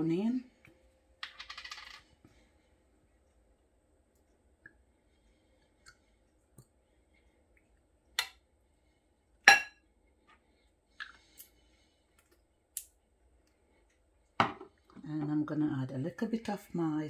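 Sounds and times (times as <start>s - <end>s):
glass clinking: 9.5s - 9.8s.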